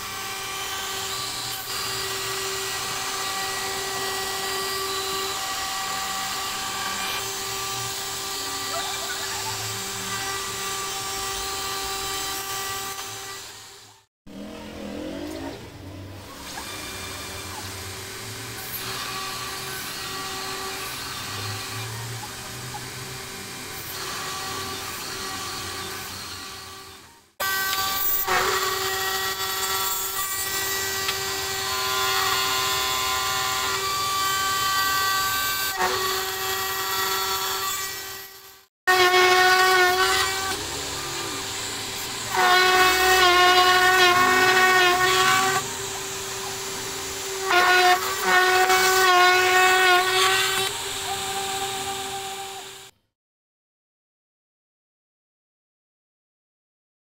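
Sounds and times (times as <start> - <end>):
cutter squealing: 0.0 - 15.6, 16.2 - 52.9
router spindle whine: 40.1 - 49.0, 50.1 - 52.9.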